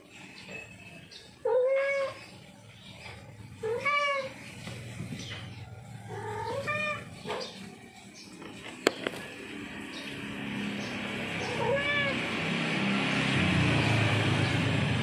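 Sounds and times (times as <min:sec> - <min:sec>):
cat meowing: 0:01.4 - 0:02.2, 0:03.6 - 0:04.4, 0:06.1 - 0:07.2, 0:11.4 - 0:12.3.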